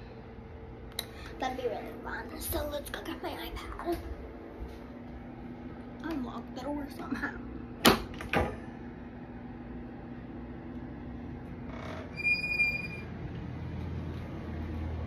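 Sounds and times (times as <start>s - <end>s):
high clear squeak: 11.7s - 13.1s.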